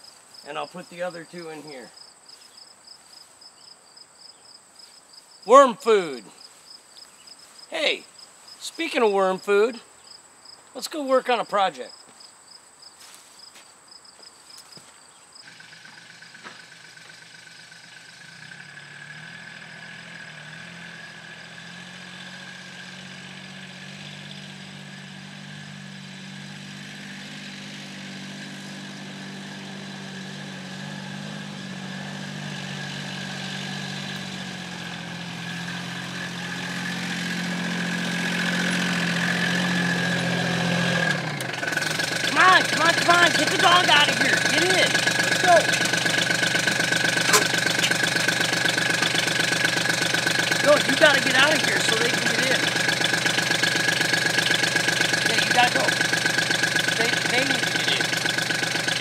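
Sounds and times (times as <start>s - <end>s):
crickets chirring: 0.0s - 21.8s
utility vehicle engine running: 15.4s - 59.0s.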